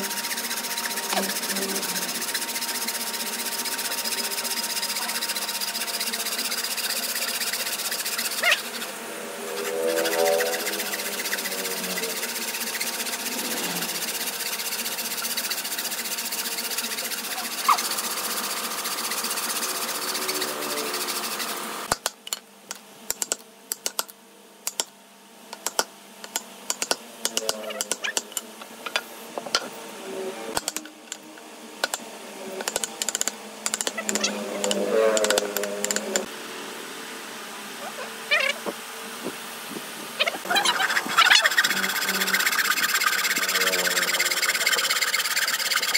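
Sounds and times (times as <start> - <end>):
saw rasping through wood: 0.0 - 21.9, 40.4 - 45.9.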